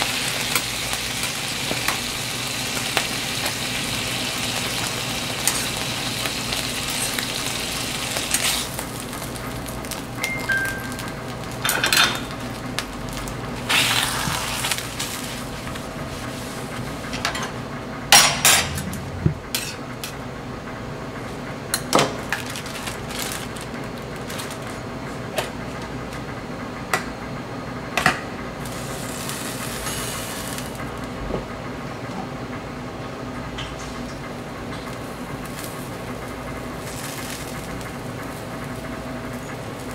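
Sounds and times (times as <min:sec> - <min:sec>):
steady background hum: 0:00.0 - 0:39.9
metal utensils clinking on cookware: 0:11.6 - 0:12.3.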